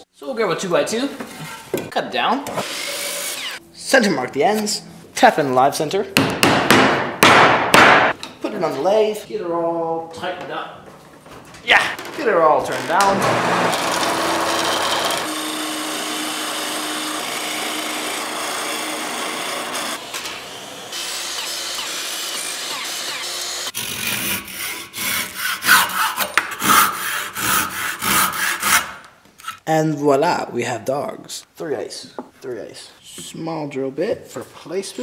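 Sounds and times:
handsaw cutting wood: 2.6s - 3.6s, 12.9s - 29.0s
miter saw running: 13.1s - 23.9s.

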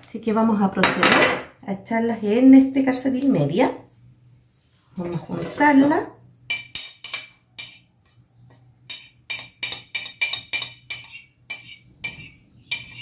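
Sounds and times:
knife clinking on a plate: 6.5s - 7.9s, 8.9s - 13.0s.

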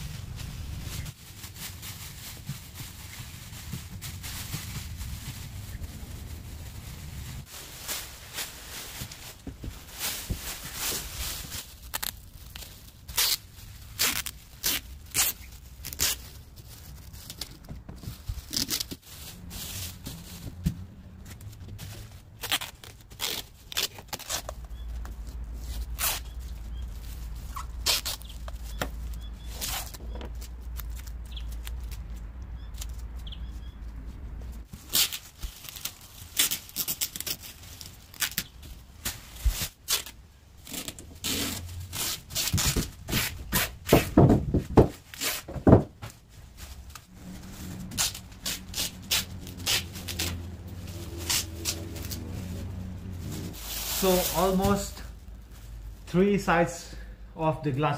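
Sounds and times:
plastic sheet crinkling: 0.0s - 33.3s, 34.6s - 56.2s
low rumble: 3.6s - 8.8s, 18.1s - 22.5s, 46.4s - 56.1s.

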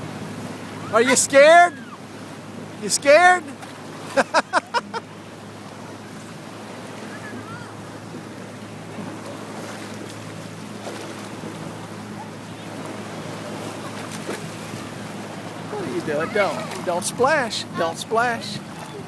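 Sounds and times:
shallow sea water washing: 0.0s - 19.0s.

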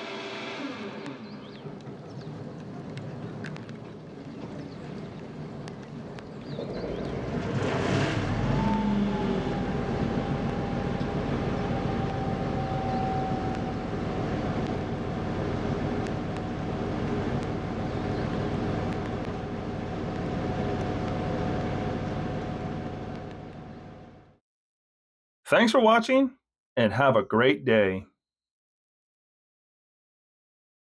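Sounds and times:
diesel locomotive engine: 0.0s - 24.4s
steady whine: 0.0s - 24.4s.

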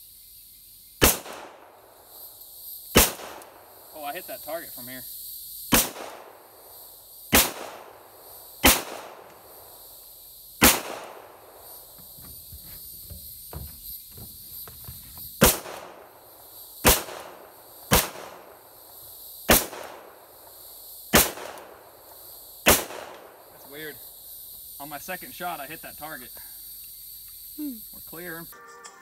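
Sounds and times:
pistol shots: 1.0s - 1.9s, 2.9s - 3.8s, 5.7s - 6.5s, 7.3s - 9.4s, 10.6s - 11.6s, 15.4s - 16.1s, 16.8s - 18.6s, 19.5s - 20.2s, 21.1s - 21.8s, 22.6s - 23.3s.

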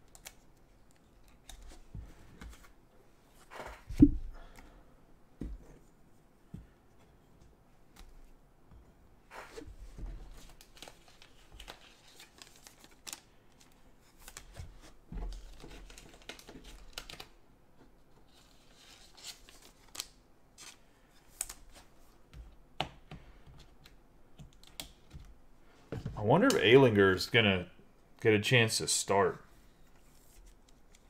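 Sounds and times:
cards rustling and sliding: 9.3s - 17.3s, 18.2s - 22.0s, 29.7s - 31.0s.

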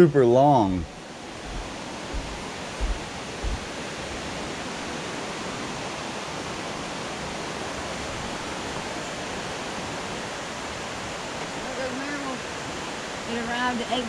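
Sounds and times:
steady rushing noise: 0.7s - 14.0s
low thumps: 1.4s - 4.2s.

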